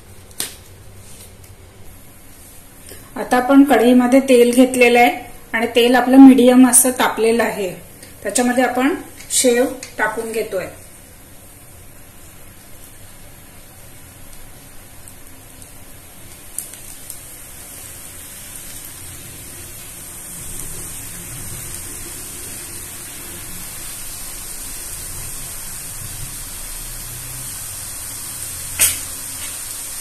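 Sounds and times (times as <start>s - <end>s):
food sizzling in oil: 5.7s - 30.0s.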